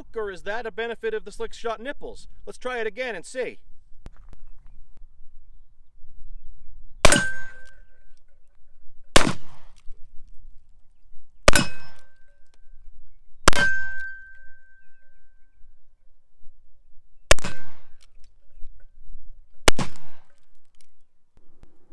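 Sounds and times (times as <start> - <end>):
revolver gunshots: 7.0 - 7.8, 9.2 - 9.8, 11.5 - 12.1, 17.3 - 18.0, 19.6 - 20.4
steel target ringing: 7.0 - 7.8, 11.5 - 12.4, 13.5 - 15.0.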